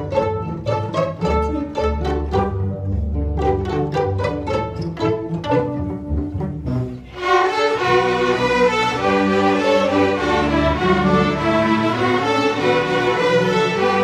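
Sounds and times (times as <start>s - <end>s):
string orchestra chords: 0.0s - 14.0s.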